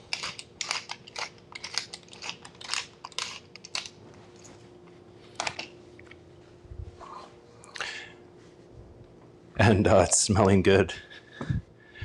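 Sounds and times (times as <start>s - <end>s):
pepper mill grinding: 0.0s - 4.0s.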